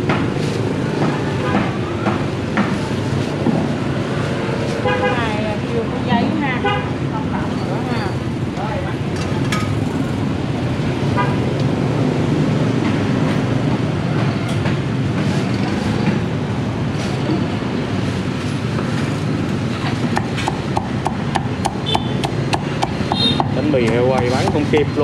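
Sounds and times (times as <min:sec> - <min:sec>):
street traffic rumble: 0:00.0 - 0:25.0
cleaver chopping on wooden block: 0:20.1 - 0:24.9.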